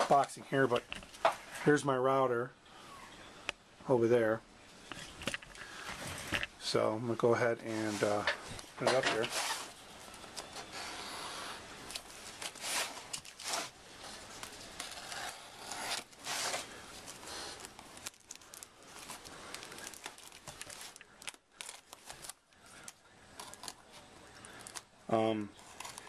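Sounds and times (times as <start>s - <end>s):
plastic crinkling and tearing: 11.8s - 24.9s, 25.6s - 26.0s
knife cutting plastic wrapping: 11.9s - 23.8s.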